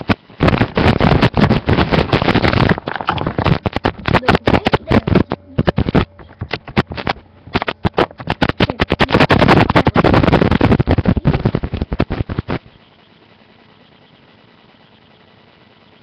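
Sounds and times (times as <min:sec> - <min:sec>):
plastic pieces clicking and rattling: 0:00.6 - 0:12.6.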